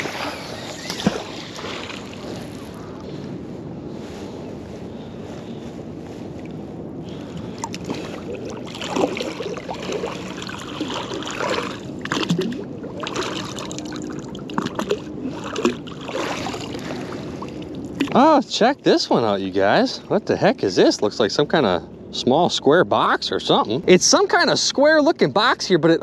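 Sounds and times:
water splashing and dripping: 7.5s - 18.2s.

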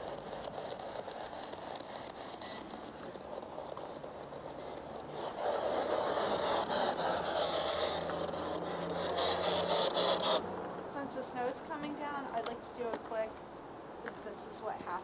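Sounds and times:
fine pattering ticks: 0.0s - 9.6s.

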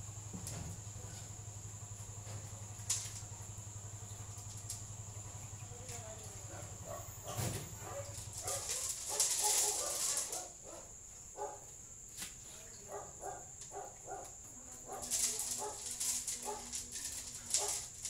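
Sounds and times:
dog barking and yipping: 6.5s - 11.7s, 12.9s - 16.7s, 17.5s - 17.9s.

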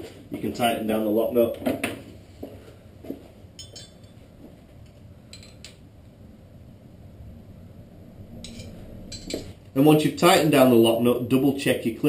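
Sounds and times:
metallic clinks of hand tools: 3.6s - 4.2s.

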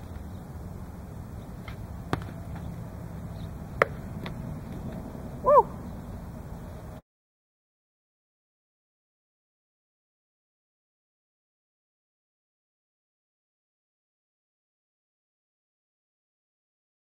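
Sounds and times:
high rising-and-falling call: 5.2s - 6.3s.

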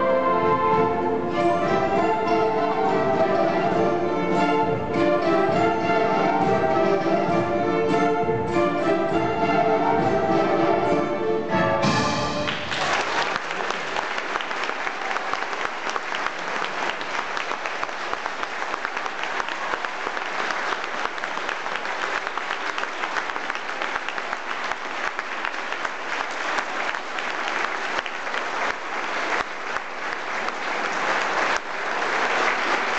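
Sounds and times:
school orchestra playing: 0.0s - 13.4s
audience applause: 12.2s - 32.9s.

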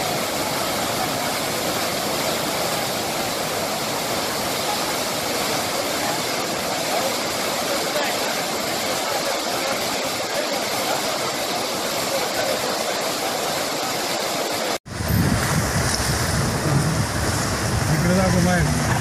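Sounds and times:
water rushing from dam spillway: 0.0s - 19.0s.

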